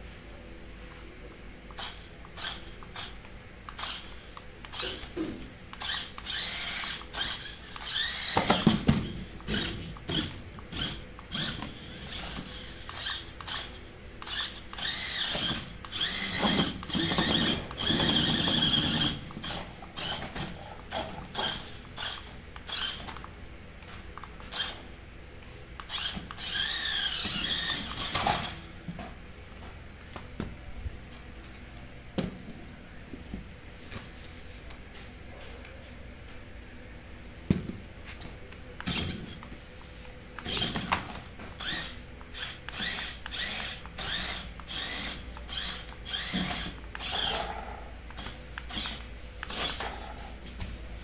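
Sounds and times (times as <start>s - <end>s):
toy truck electric motor whining: 1.7s - 24.9s, 25.8s - 28.7s, 38.8s - 39.6s, 40.4s - 50.2s.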